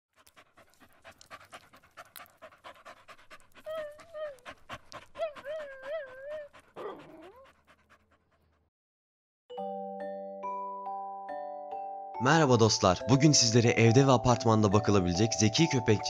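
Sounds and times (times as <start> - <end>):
dog panting rapidly: 0.1 - 8.7
dog wavering vocal calls: 0.3 - 7.7.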